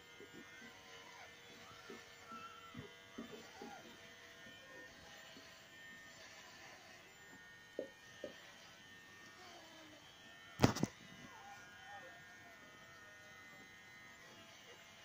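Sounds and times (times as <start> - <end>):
puppies squeaking and whimpering: 0.5 - 4.0.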